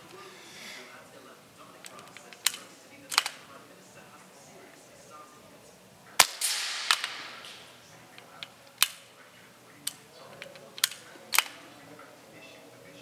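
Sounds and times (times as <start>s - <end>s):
air rifle shot: 6.2s - 7.7s.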